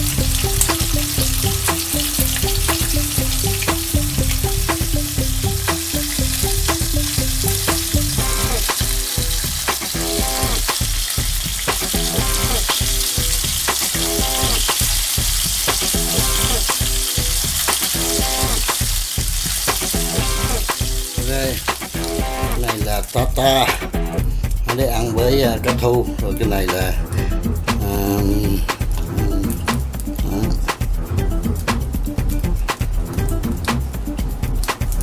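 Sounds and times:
food sizzling in hot oil: 0:00.0 - 0:24.0
background music with beat: 0:00.0 - 0:35.0.

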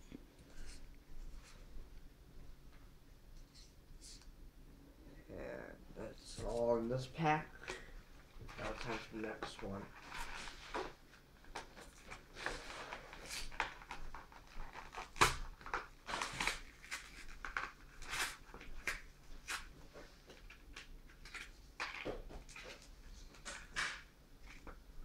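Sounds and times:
foil wrapper crinkling and tearing: 0:11.4 - 0:19.7.

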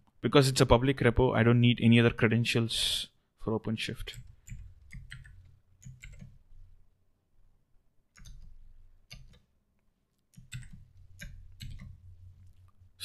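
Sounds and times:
keyboard keys clicking: 0:04.1 - 0:06.4, 0:08.2 - 0:09.5, 0:10.3 - 0:12.7.

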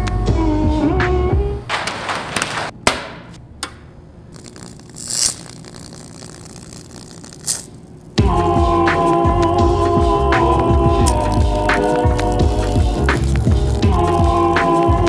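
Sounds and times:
etching pen crackling and hissing: 0:04.3 - 0:08.2, 0:10.5 - 0:15.0.

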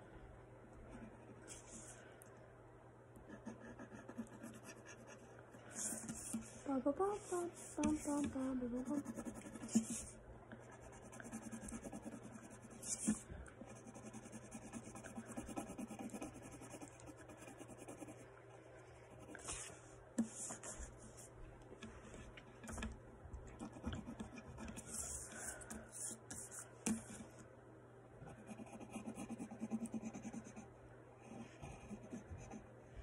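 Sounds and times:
pen scratching on paper: 0:03.3 - 0:06.6, 0:07.2 - 0:18.2, 0:28.3 - 0:30.6.

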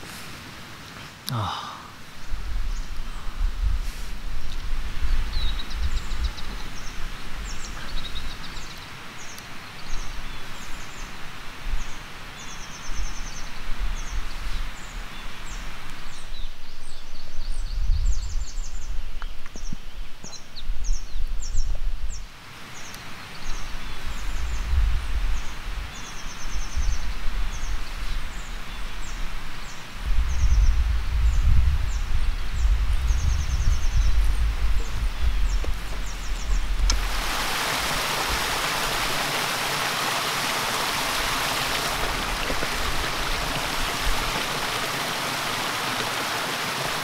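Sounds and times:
small birds chirping: 0:00.0 - 0:03.4, 0:04.4 - 0:11.2, 0:11.8 - 0:47.0
wind rushing through trees: 0:00.0 - 0:47.0
wind rumble on microphone: 0:02.2 - 0:08.6, 0:12.9 - 0:22.3, 0:23.5 - 0:39.4.

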